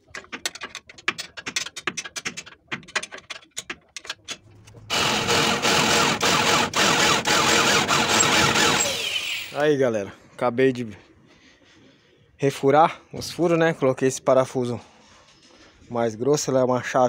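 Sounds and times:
electric drill boring through steel: 4.9s - 9.6s.

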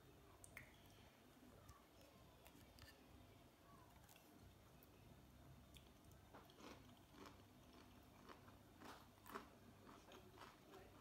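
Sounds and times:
crunching and chewing: 5.7s - 11.0s.

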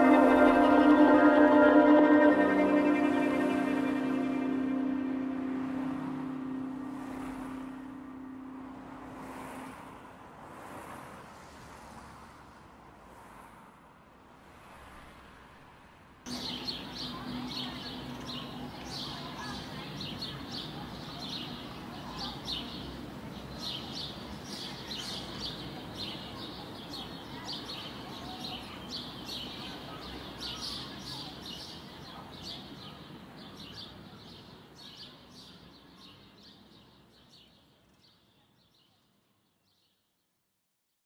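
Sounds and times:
small birds chirping: 16.3s - 39.0s.

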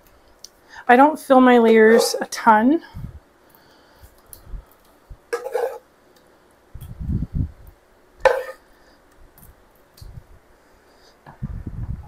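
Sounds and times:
utensil clacking in baking pan: 1.7s - 2.4s, 5.4s - 5.8s, 8.3s - 8.6s.

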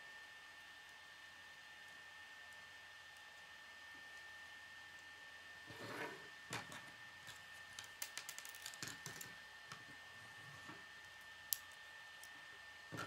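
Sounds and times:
plastic pieces clicking together: 7.3s - 9.4s.

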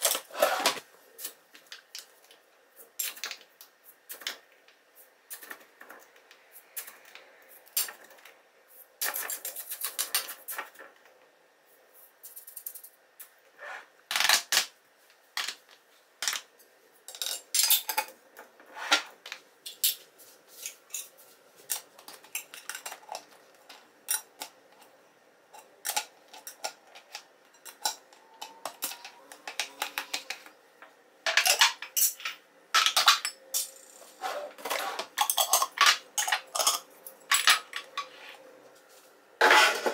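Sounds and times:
tins and jars clinking on countertop: 25.6s - 30.5s, 31.3s - 33.8s, 34.6s - 38.2s.

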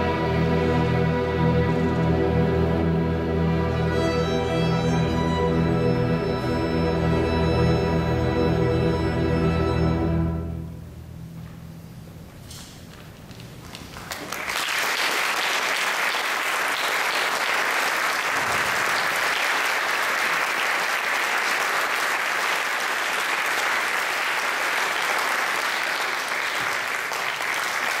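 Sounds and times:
audience applause: 13.7s - 28.0s.

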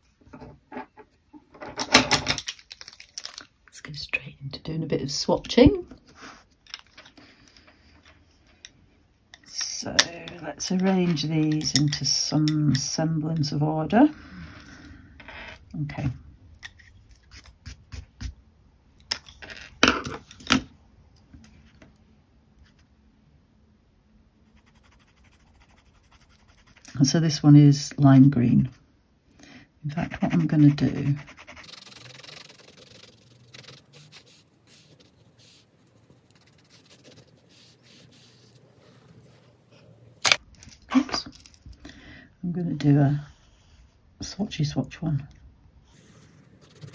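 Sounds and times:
pencil scratching on paper: 24.5s - 27.0s, 29.9s - 39.4s, 45.9s - 46.9s.

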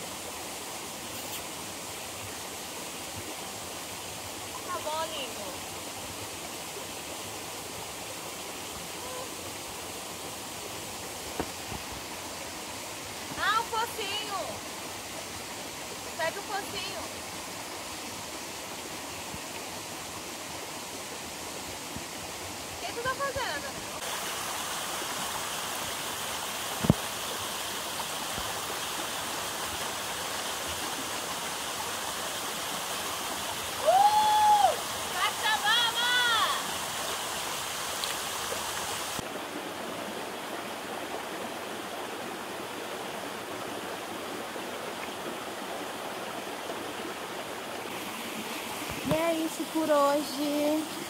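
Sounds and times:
waterfall rushing: 0.0s - 51.0s
woman's long held call: 9.0s - 9.5s, 33.8s - 34.8s.

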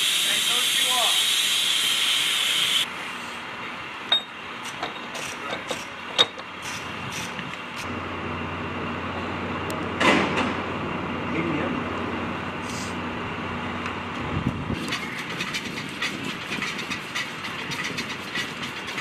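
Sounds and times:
loud hiss: 0.0s - 2.9s.

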